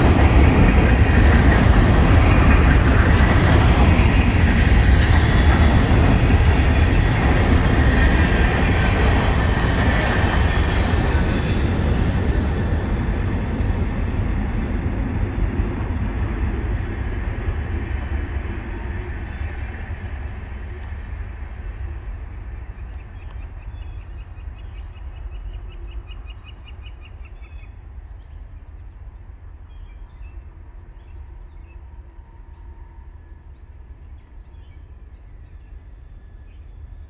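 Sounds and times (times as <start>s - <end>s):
freight train rumbling: 0.0s - 37.0s.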